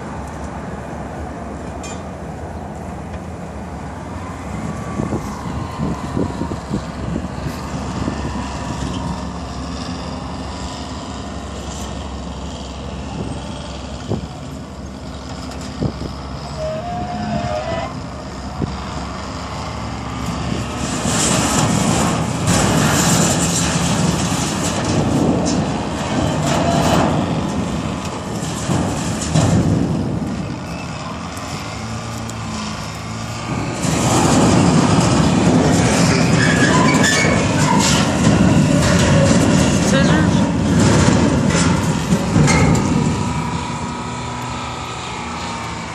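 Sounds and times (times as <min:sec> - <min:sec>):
diesel engine running: 0:00.0 - 0:45.9
crunching and clanking sheet metal: 0:20.6 - 0:30.9, 0:32.6 - 0:44.1.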